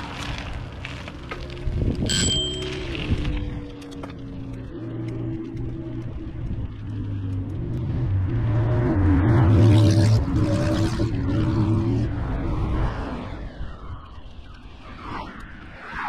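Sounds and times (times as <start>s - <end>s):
vehicle passing by: 7.5s - 13.4s.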